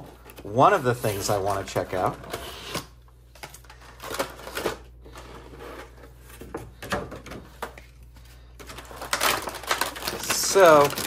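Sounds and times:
plastic packaging crackling: 8.6 - 11.0.

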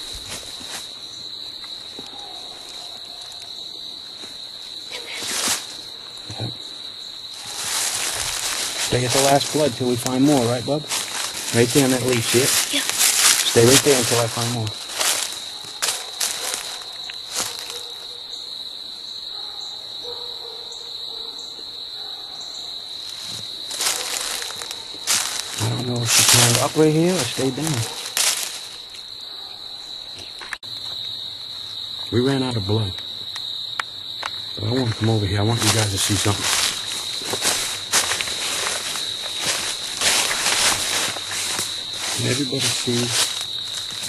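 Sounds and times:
footsteps in dry leaves: 0.0 - 1.4, 2.6 - 6.0, 7.2 - 18.0, 23.0 - 29.1, 34.8 - 44.0
cricket trill: 0.0 - 44.0
insects chirring: 0.0 - 44.0.

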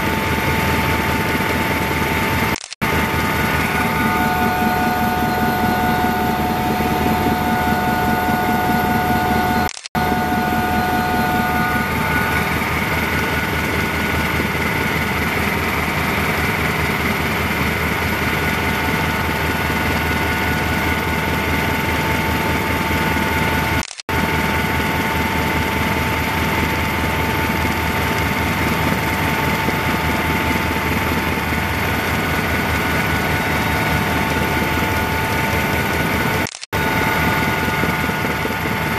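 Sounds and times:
high whining tones: 0.0 - 23.9
helicopter turbine and rotor drone: 0.0 - 38.9.

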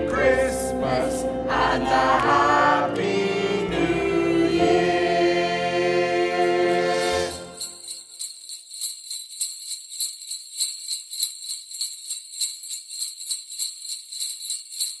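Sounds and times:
jingle bells shaken: 6.4 - 15.0.

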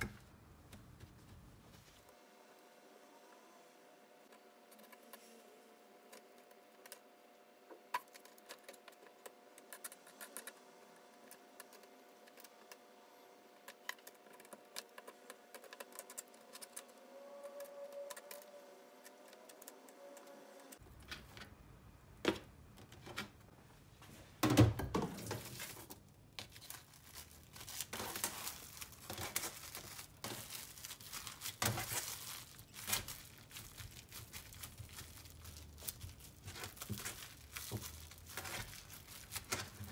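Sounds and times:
cling film crinkling: 25.2 - 39.9
cling film ripping: 25.3 - 39.9.

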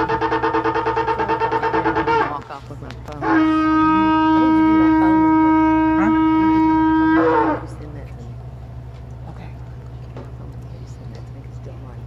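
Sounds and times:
shofar blast: 0.0 - 2.4, 3.2 - 7.8.

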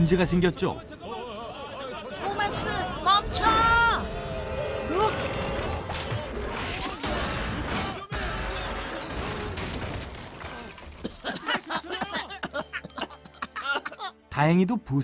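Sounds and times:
metal scaffolding crashing: 6.6 - 11.8.

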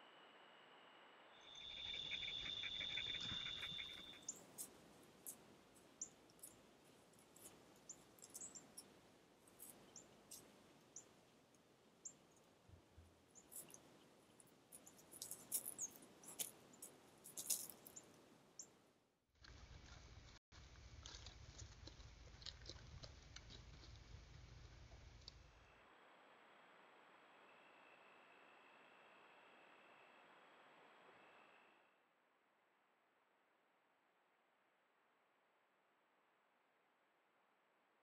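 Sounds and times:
high insect trill: 1.4 - 4.7
hooves stepping on gravel: 14.8 - 18.2.

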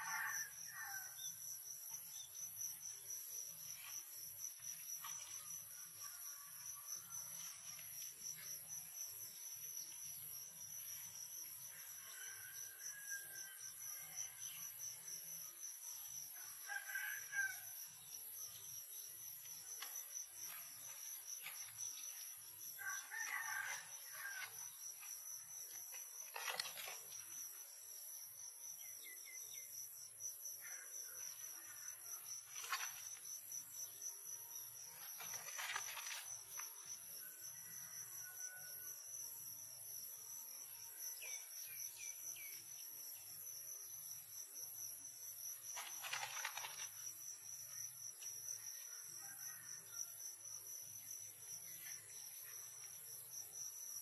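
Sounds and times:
insect chorus: 0.0 - 54.0
rooster crowing faintly: 22.8 - 24.7.

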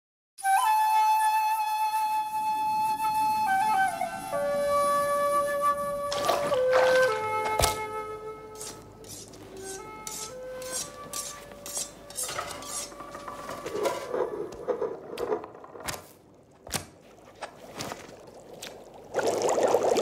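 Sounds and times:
utensil scraping strokes: 8.5 - 15.5
pots and cutlery clattering: 12.1 - 15.5.

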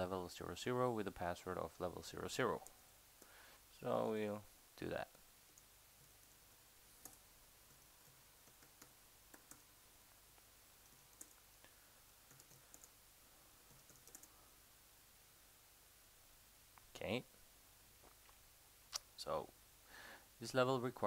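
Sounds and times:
computer keyboard keystrokes: 8.4 - 9.6, 12.3 - 12.9, 13.7 - 14.3.

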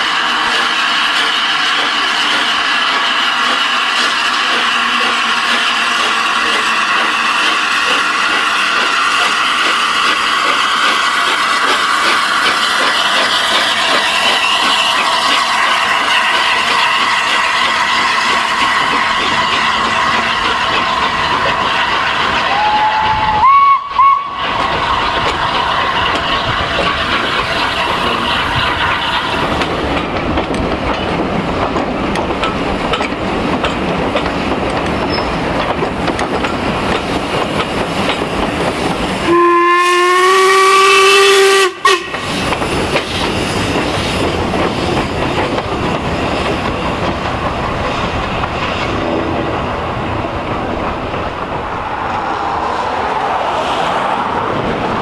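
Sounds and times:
train coaches rumbling over rails: 0.0 - 55.0
steam locomotive whistle: 14.2 - 24.7, 39.2 - 42.4.

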